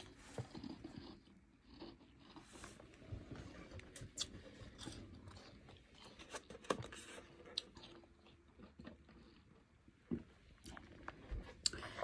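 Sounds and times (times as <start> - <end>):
ice being chewed: 0.0 - 2.9, 3.8 - 9.7.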